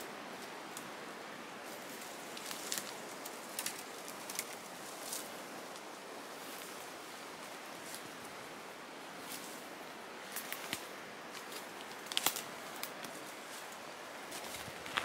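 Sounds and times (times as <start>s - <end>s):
steady outdoor hiss: 0.0s - 15.0s
twigs and leaves crackling underfoot: 1.6s - 8.4s, 9.2s - 15.0s
twigs snapping: 2.3s - 5.9s, 10.3s - 13.2s.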